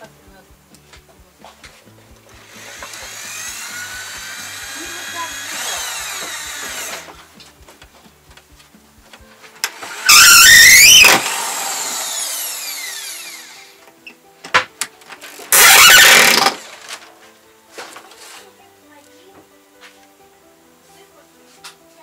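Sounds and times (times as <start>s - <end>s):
cordless drill whining: 2.4s - 7.3s, 9.6s - 13.8s, 15.3s - 17.0s.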